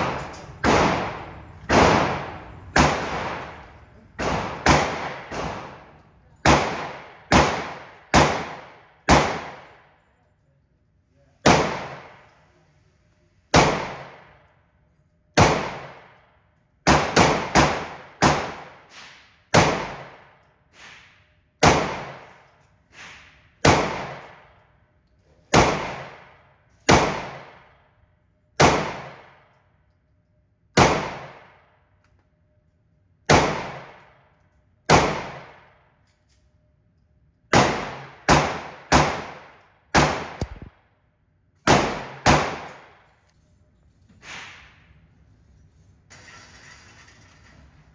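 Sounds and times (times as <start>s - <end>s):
faint gunshots: 0.0s - 3.6s, 4.2s - 5.8s, 6.4s - 9.7s, 11.4s - 12.2s, 41.7s - 43.0s
gunshots echoing indoors: 0.0s - 10.4s, 11.4s - 12.5s, 13.4s - 32.2s, 33.2s - 36.3s, 37.0s - 43.2s.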